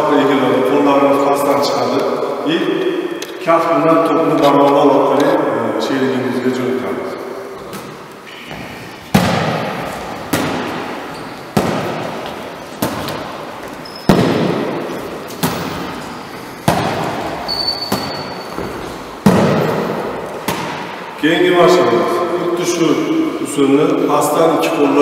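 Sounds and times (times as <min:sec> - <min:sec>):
volleyball slapping hands: 0:09.1 - 0:13.5, 0:14.1 - 0:18.3, 0:19.2 - 0:21.0.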